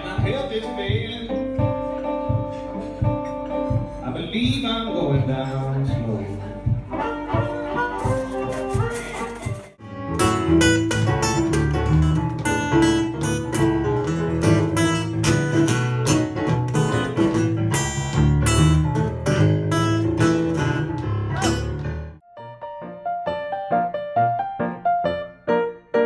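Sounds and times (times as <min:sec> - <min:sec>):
strummed acoustic guitar blues: 0:06.9 - 0:22.2.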